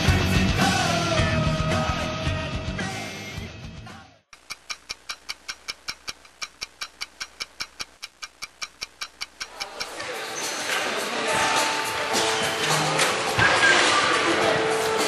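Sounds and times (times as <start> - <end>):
music: 0.0 - 4.3, 10.1 - 15.0
mechanical ticking: 4.4 - 10.0.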